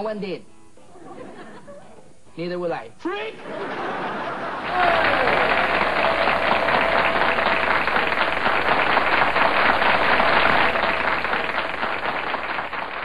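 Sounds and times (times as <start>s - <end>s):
studio audience applauding: 3.8s - 13.0s.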